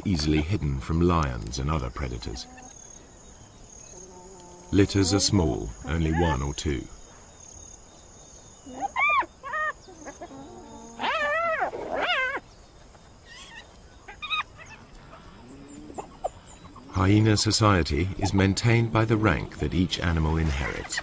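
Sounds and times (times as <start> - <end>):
crickets chirping: 0.0 - 21.0
hyena cubs whining: 3.8 - 6.5, 8.6 - 17.0.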